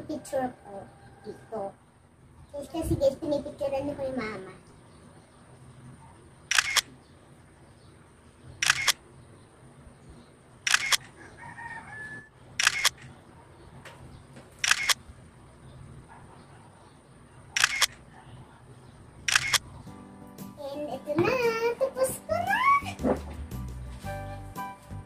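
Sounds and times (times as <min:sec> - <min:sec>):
camera shutter clicks: 0:06.5 - 0:06.9, 0:08.6 - 0:09.0, 0:10.6 - 0:11.1, 0:12.6 - 0:13.1, 0:14.6 - 0:15.0, 0:17.6 - 0:18.0, 0:19.3 - 0:19.6.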